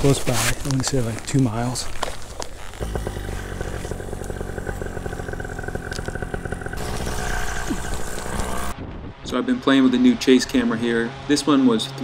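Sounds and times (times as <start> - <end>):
paramotor engine and propeller: 2.7 - 8.8.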